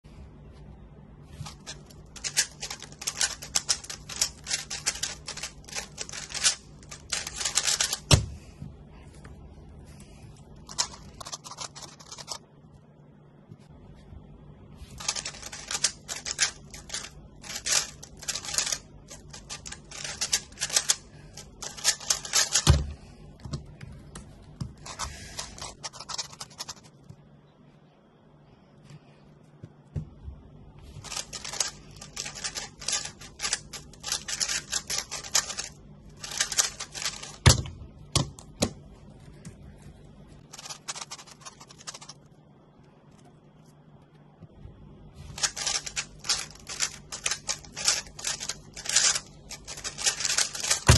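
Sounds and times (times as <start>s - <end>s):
puzzle cube layers clicking: 1.4s - 8.2s, 15.0s - 22.7s, 31.0s - 37.5s, 45.4s - 50.9s.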